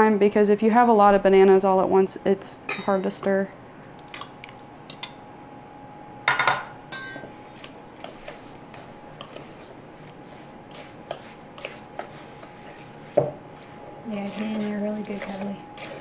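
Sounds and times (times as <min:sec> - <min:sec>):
fork scraping metal bowl: 0:07.5 - 0:16.0.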